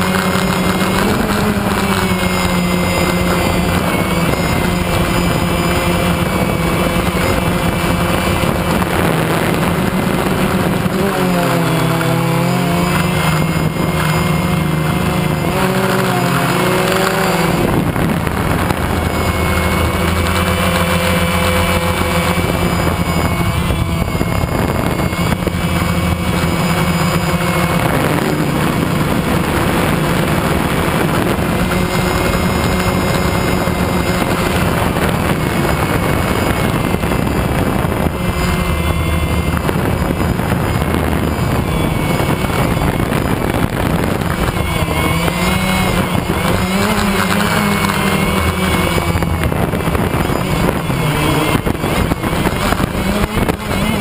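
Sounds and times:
drone propellers whirring: 0:00.0 - 0:54.0.

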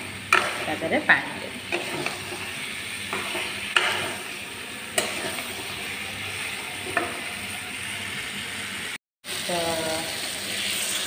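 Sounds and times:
vegetables sizzling in pan: 0:00.0 - 0:11.0
spatula stirring and scraping: 0:00.1 - 0:07.6.

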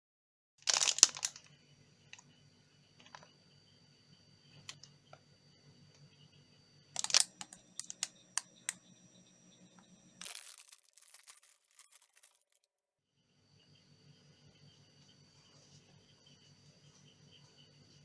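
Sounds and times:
wrapper being torn open: 0:00.6 - 0:01.4, 0:10.2 - 0:12.7
plastic wrapper crackling: 0:00.6 - 0:01.5, 0:07.0 - 0:08.1, 0:10.2 - 0:12.7
sharp clicks: 0:07.0 - 0:08.9.

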